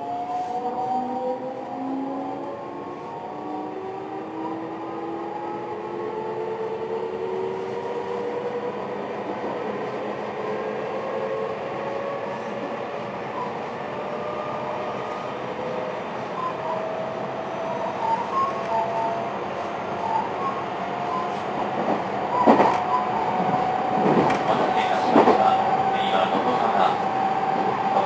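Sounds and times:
train clatters: 20.0 - 28.0.

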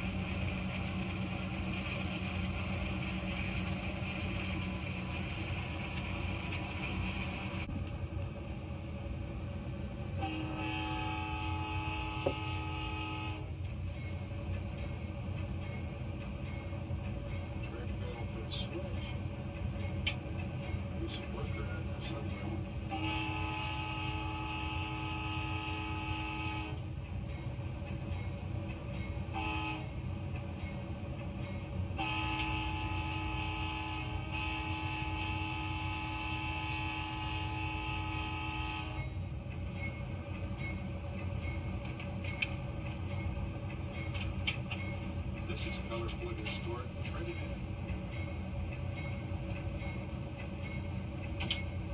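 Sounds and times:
low train rumble: 0.0 - 51.9
train horn blast: 10.2 - 13.6, 22.9 - 26.8, 29.3 - 30.0, 32.0 - 39.2.

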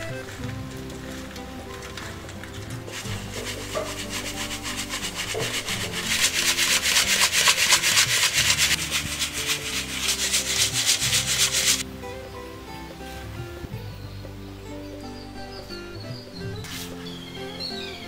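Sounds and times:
flour sieve rasping hiss: 0.0 - 11.8.

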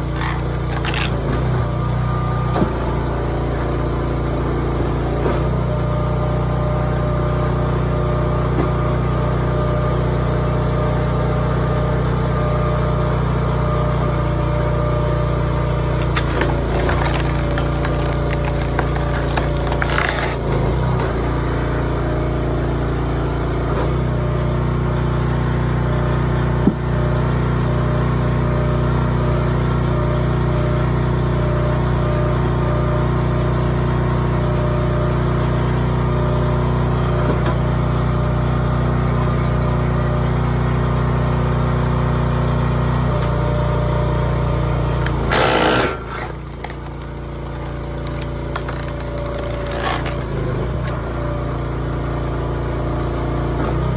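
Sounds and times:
wood cracking: 0.0 - 1.7, 14.6 - 21.2, 44.9 - 51.0
small gas engine running: 0.0 - 53.9.

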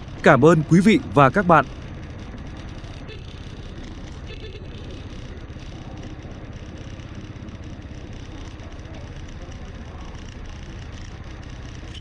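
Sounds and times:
vehicle engine running steadily: 0.0 - 12.0.

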